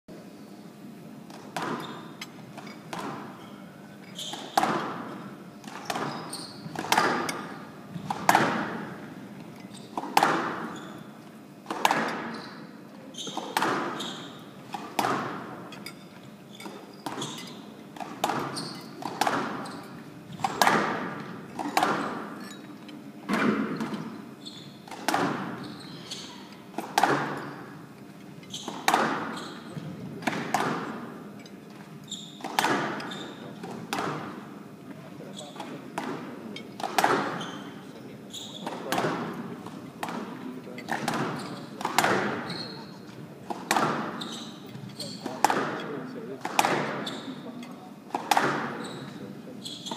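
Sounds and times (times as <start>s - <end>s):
squash ball knocks echoing: 1.3s - 3.4s, 4.3s - 9.2s, 10.0s - 10.8s, 11.6s - 12.4s, 13.3s - 14.0s, 14.7s - 15.9s, 17.0s - 22.4s, 24.8s - 25.7s, 26.7s - 27.9s, 28.7s - 31.4s, 32.4s - 34.6s, 35.6s - 37.7s, 38.6s - 42.6s, 43.4s - 44.2s, 45.3s - 47.1s, 48.1s - 48.8s.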